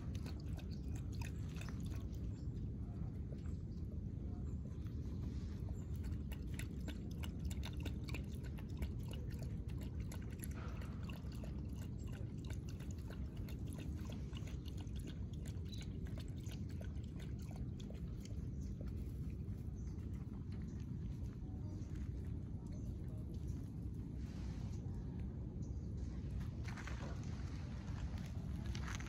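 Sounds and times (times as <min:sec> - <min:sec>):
dog lapping from bowl: 0:00.0 - 0:03.9, 0:04.8 - 0:21.4
low rumble: 0:09.4 - 0:29.0.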